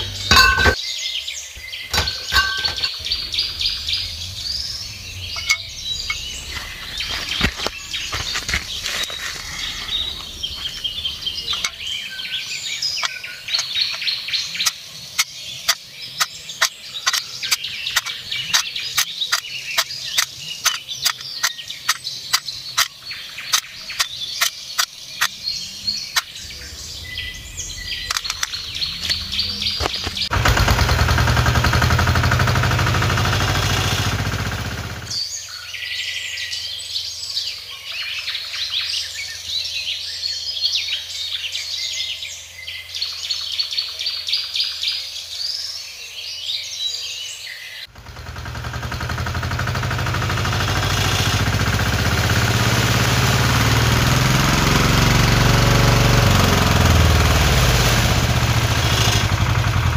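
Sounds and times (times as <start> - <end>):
bricks clinking into metal tray: 0.0 - 0.8, 1.9 - 3.0
loud steady noise: 0.0 - 0.8, 1.9 - 11.9, 25.5 - 35.1
birds singing: 0.0 - 59.9.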